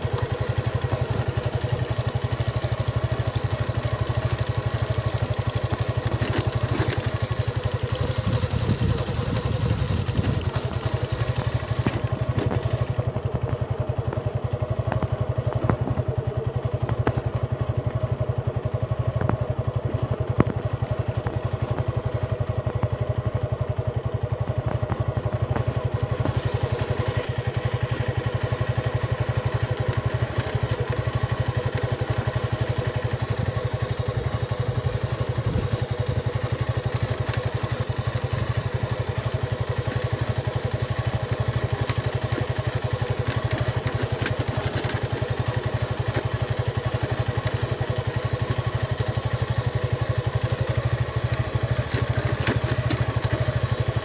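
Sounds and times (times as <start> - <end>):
motorcycle engine running: 0.0 - 54.0
short clicks and rattles: 41.1 - 47.7.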